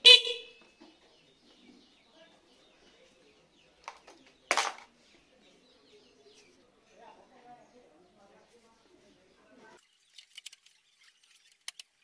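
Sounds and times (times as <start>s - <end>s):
motorcycle horn beep: 0.0s - 0.6s.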